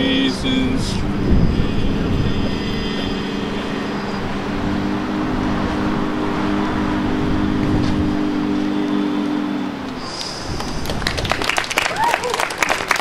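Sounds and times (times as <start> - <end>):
male vocal quartet singing: 0.0 - 5.6.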